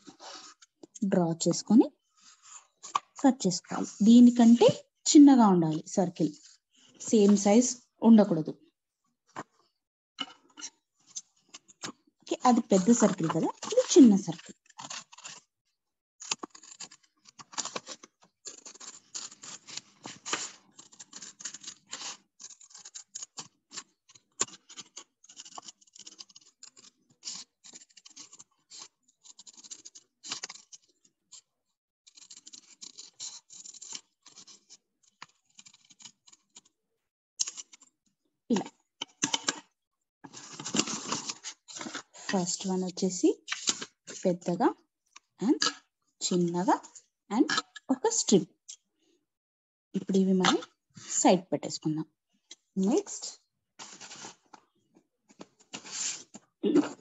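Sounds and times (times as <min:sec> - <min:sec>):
paper rustling: 0:10.6 - 0:15.5, 0:16.2 - 0:31.4, 0:40.2 - 0:42.7, 0:43.5 - 0:44.2, 0:53.8 - 0:54.6, 0:55.3 - 0:56.5
scissors snipping paper: 0:11.5 - 0:15.5, 0:16.2 - 0:31.4, 0:32.1 - 0:36.7.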